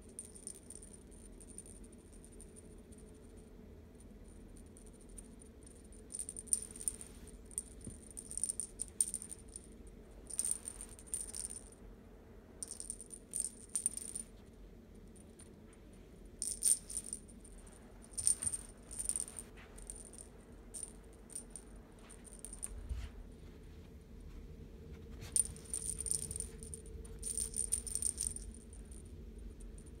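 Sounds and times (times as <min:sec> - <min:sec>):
cat toy rattling and jingling: 0:10.3 - 0:11.7, 0:16.4 - 0:17.4, 0:18.0 - 0:23.0, 0:25.2 - 0:29.0.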